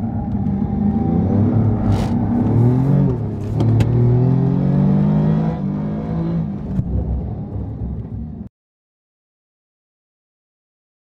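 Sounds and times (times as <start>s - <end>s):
car engine revving: 0.0s - 8.5s.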